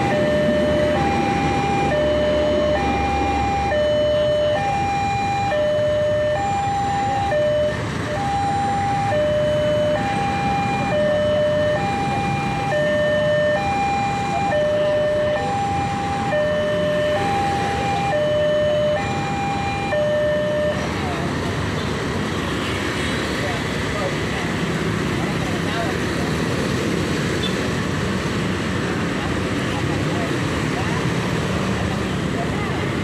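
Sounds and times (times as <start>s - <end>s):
two-tone level crossing alarm: 0.0s - 20.9s.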